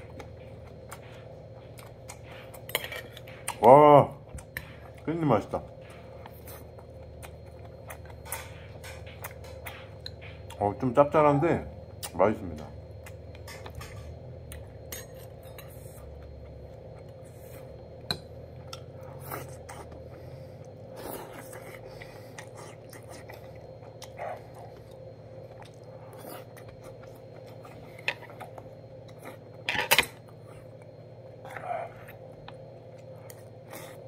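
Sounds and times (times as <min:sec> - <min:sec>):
person chewing: 0:00.0 - 0:05.1, 0:05.9 - 0:10.8, 0:12.8 - 0:34.0
steady low hum: 0:00.0 - 0:34.0.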